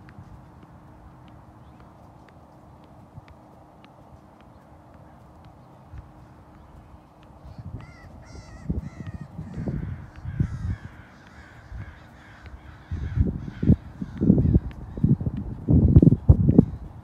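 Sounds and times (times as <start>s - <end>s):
bird calling: 4.1s - 15.2s
dull low thumps: 5.4s - 17.0s.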